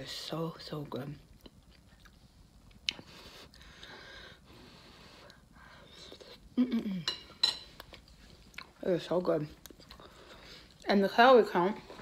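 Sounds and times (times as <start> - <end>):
person chewing: 1.3 - 4.0, 5.1 - 8.8, 9.6 - 10.9
person humming mmm: 5.9 - 7.2.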